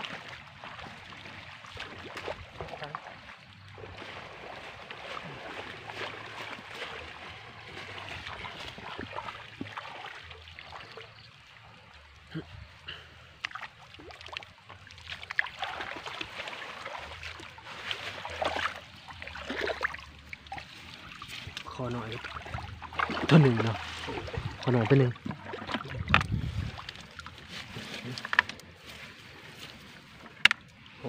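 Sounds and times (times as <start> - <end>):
water dripping: 0.0 - 27.4
water splashing and sloshing: 0.0 - 31.0.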